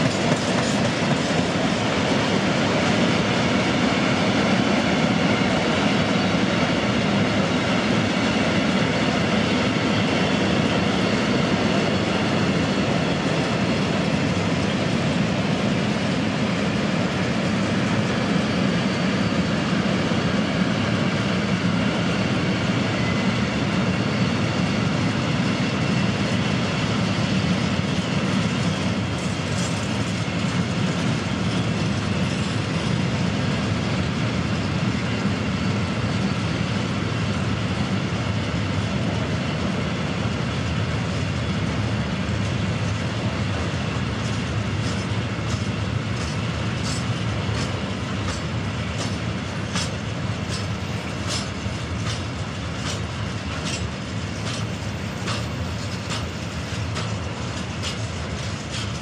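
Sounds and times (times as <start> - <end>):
train wheels rumbling on rails: 0.0 - 59.0
wheels clicking over track: 44.2 - 59.0.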